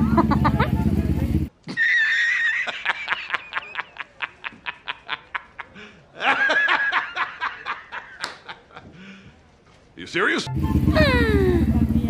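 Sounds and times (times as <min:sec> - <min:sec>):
man laughing hard: 0:00.0 - 0:01.0, 0:01.7 - 0:08.9, 0:10.9 - 0:11.7.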